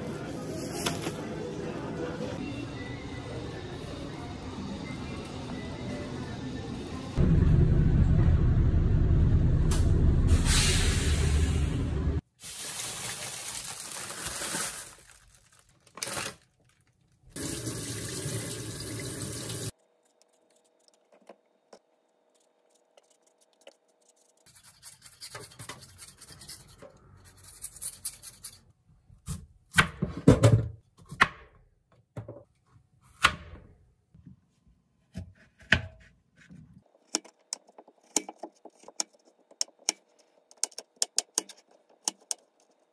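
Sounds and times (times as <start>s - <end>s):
kitchen tap running: 17.4s - 19.7s.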